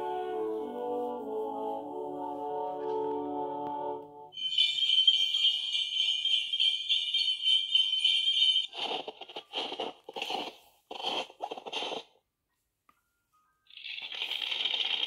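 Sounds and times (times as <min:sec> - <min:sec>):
sleigh bells jingle from speaker: 0:04.4 - 0:09.0.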